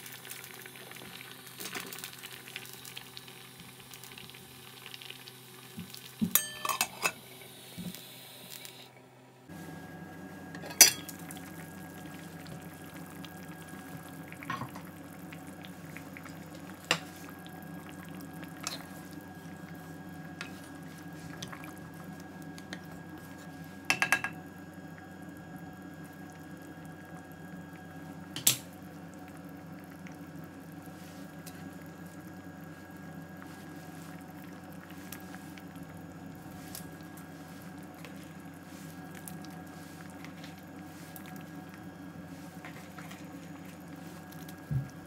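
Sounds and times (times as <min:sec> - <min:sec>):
curry simmering: 0:11.1 - 0:23.8, 0:24.6 - 0:45.0.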